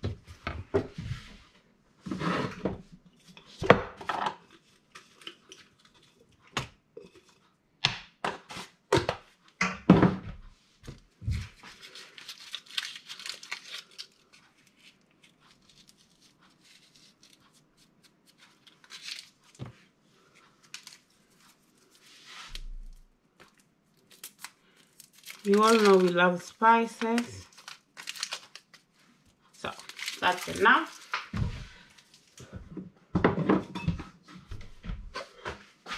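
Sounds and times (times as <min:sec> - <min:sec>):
spice packet rustling: 0:11.5 - 0:19.6, 0:20.6 - 0:32.4.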